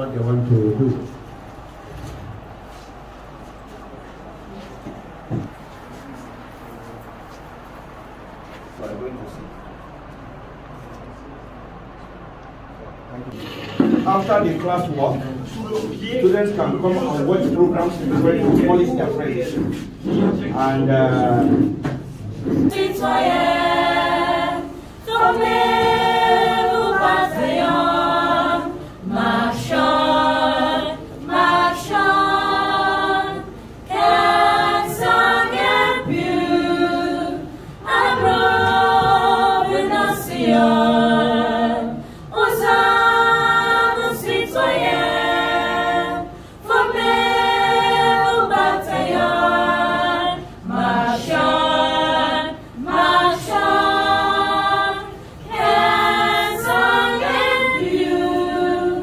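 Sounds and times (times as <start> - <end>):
group singing a cappella: 13.3 - 59.0.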